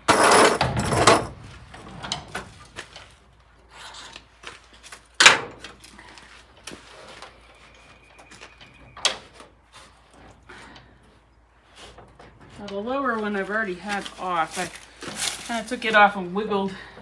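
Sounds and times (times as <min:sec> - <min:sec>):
metal door scraping on hinges: 0:00.0 - 0:02.6.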